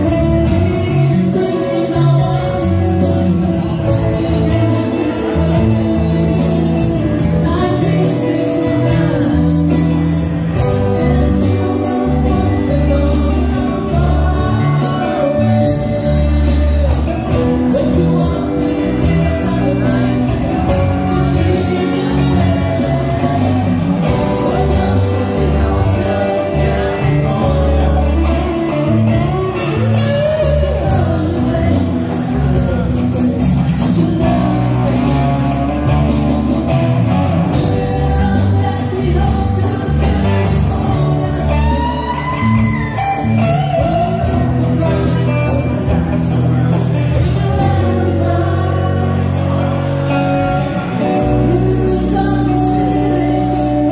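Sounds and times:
live rock band playing: 0.0 - 53.9
man singing into a microphone: 0.0 - 53.9.

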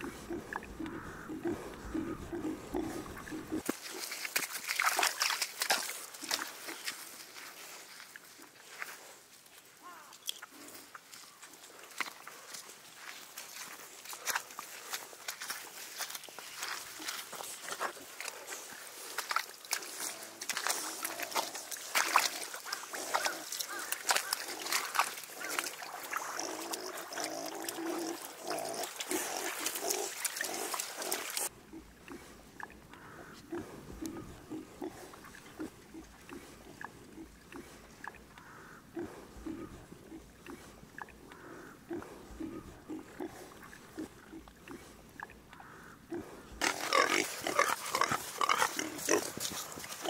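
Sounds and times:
piglets grunting: 0.0 - 3.6
pigs grunting: 0.0 - 4.2, 19.7 - 50.0
wet splashing in mud: 0.0 - 7.2, 14.0 - 31.5
pigs snuffling: 0.0 - 50.0.

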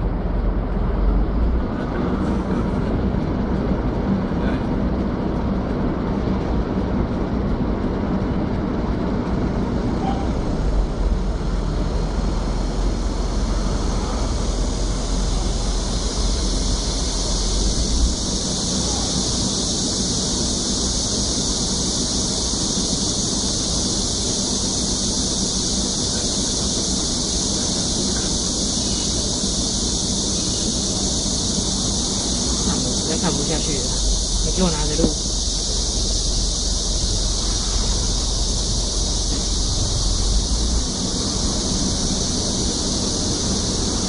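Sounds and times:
night insects chirring: 9.0 - 44.0
low rumble: 31.6 - 44.0.

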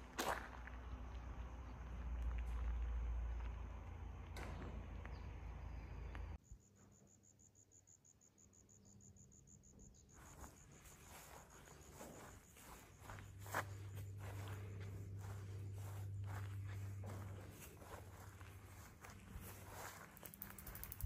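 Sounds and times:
soft footsteps on dirt: 0.0 - 6.4, 10.1 - 21.0
cricket chirping: 5.2 - 21.0.

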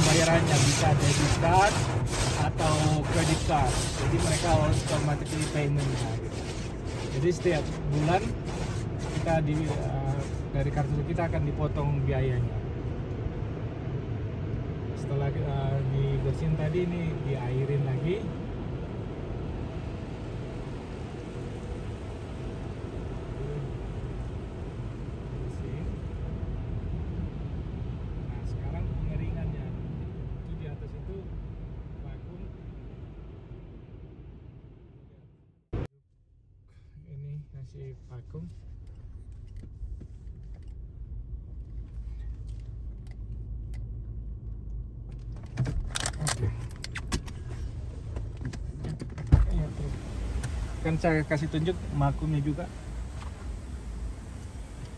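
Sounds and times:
blower dryers rumbling: 0.0 - 11.1, 49.4 - 54.9
water spraying over car: 0.0 - 12.4, 49.4 - 54.9.

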